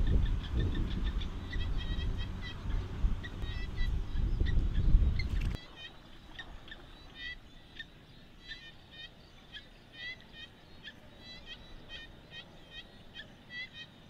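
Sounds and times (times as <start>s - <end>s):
high chirping animal calls: 0.0s - 14.0s.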